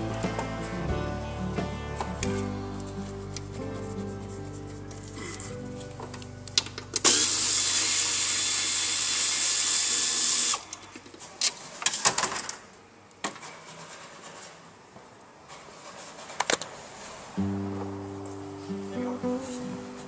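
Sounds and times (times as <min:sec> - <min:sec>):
power ratchet hissing: 0:07.0 - 0:10.6.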